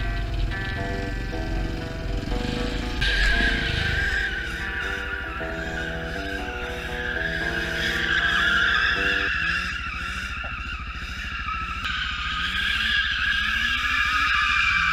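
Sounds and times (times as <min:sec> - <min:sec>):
low engine rumble: 0:00.0 - 0:09.3
background music: 0:00.0 - 0:09.4
car engine revving: 0:00.0 - 0:14.9
tyres squealing: 0:03.0 - 0:11.8.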